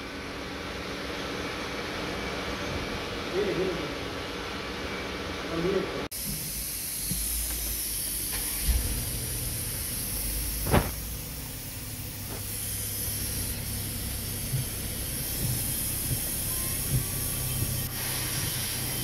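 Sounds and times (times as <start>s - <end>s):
water spray hissing on car: 6.1s - 19.0s
low steady rumble: 8.1s - 19.0s
short thump: 10.6s - 11.2s.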